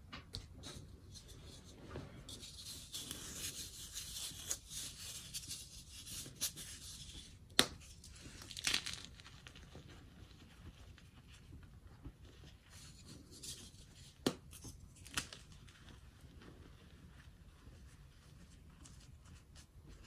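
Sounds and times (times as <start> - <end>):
powder crunching by hand: 8.0 - 9.8.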